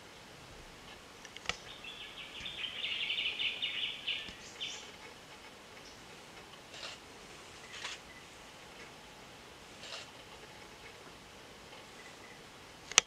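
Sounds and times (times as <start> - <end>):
bird trilling: 1.5 - 7.0.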